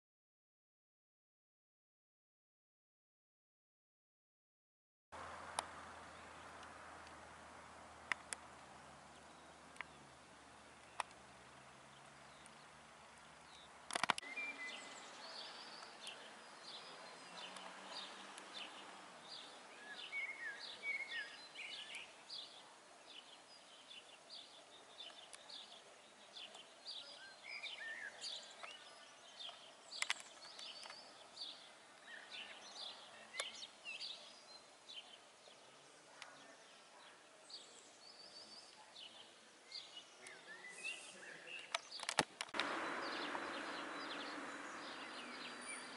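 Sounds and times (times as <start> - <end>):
small birds chirping: 5.2 - 45.9
sharp click: 13.9 - 14.3.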